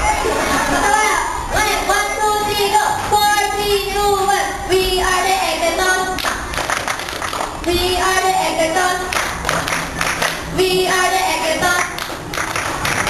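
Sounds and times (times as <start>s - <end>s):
group hand clapping: 6.1s - 7.8s, 8.9s - 10.6s, 11.6s - 13.0s
group chanting over microphone: 10.6s - 12.0s.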